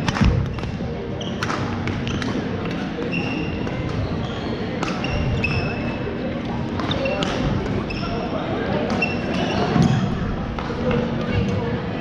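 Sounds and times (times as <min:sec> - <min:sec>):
background chatter in gym hall: 0:00.0 - 0:12.0
racket striking shuttlecock: 0:04.8 - 0:05.1.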